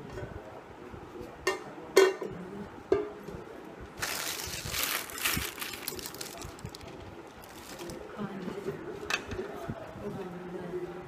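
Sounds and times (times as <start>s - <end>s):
plastic packaging crinkling: 4.0s - 8.1s.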